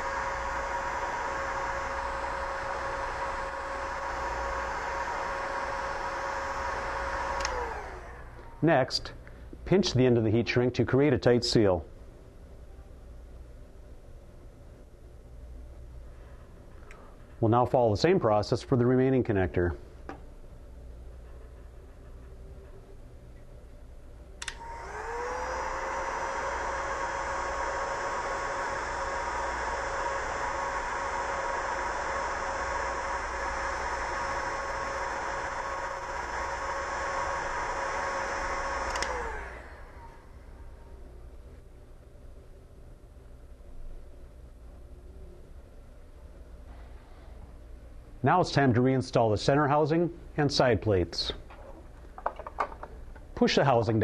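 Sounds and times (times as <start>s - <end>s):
heat gun blowing and whining: 0.0s - 8.6s, 24.4s - 40.8s
heat gun fan whine: 0.0s - 54.0s
heat gun switch click: 7.4s - 7.6s, 24.4s - 24.8s, 38.8s - 39.3s.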